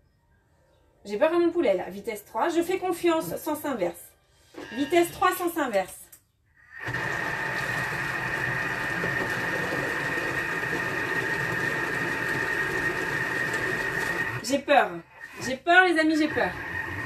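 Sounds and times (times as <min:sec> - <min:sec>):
food processor motor whirring: 0:06.6 - 0:17.0.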